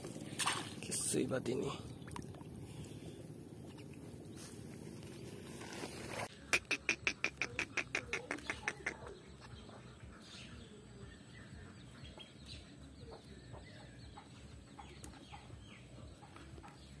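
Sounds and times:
bird harsh repeated calls: 6.3s - 10.3s.

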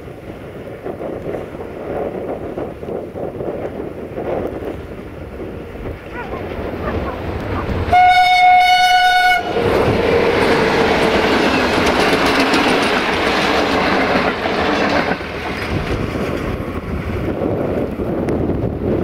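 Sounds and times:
wind on microphone: 0.0s - 19.0s
locomotive horn blast: 7.5s - 10.0s
train wheels clattering over rail joints: 9.6s - 18.4s.

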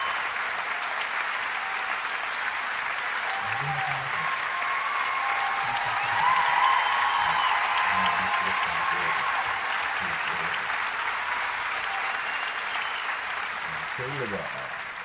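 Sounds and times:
crowd applause: 0.0s - 15.0s
thin whistles: 12.0s - 13.2s.

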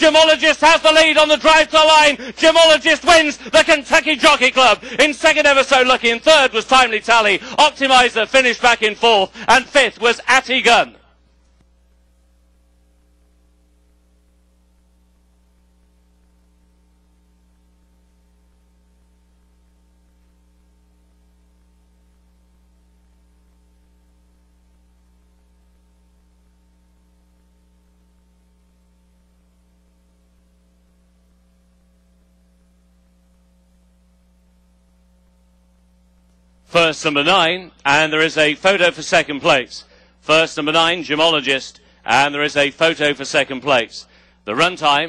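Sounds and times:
faint electrical mains hum: 0.0s - 45.0s.

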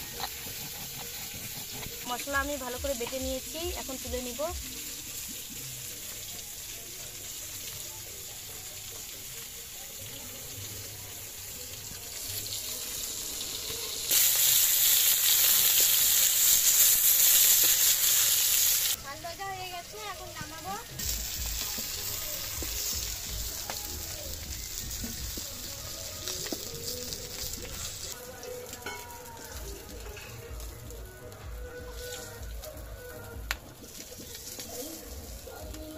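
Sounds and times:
spatula turning fish: 0.0s - 4.0s
fish sizzling in hot oil: 0.0s - 35.9s.

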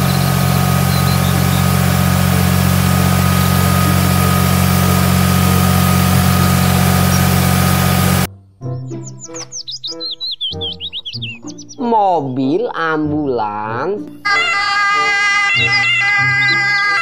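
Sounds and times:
tractor diesel engine running: 0.0s - 8.3s, 14.2s - 17.0s.

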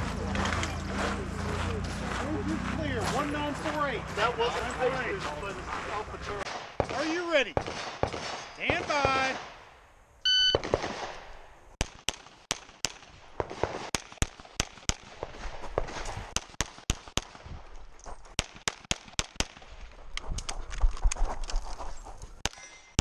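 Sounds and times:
rapid pistol shots: 6.4s - 9.6s, 10.6s - 17.5s, 18.4s - 19.8s.

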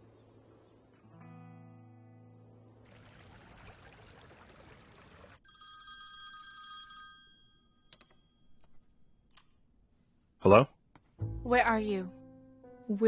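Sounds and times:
mobile phone ringtone: 5.5s - 9.0s.

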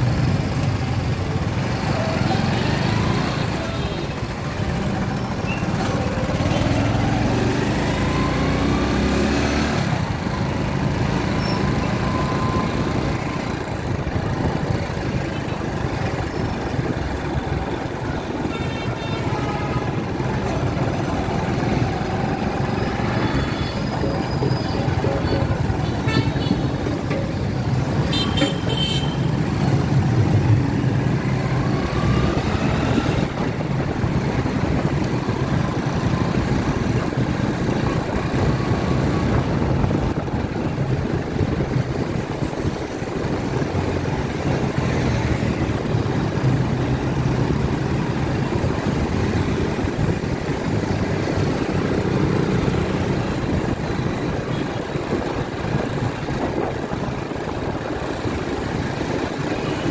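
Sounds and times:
road and wind noise: 0.0s - 59.9s
vehicle horn toot: 28.1s - 29.3s.

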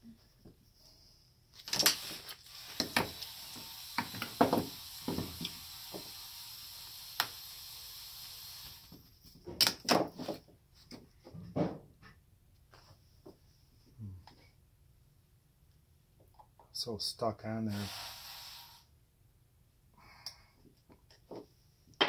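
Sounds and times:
steady hiss: 1.7s - 9.2s, 17.2s - 19.0s.

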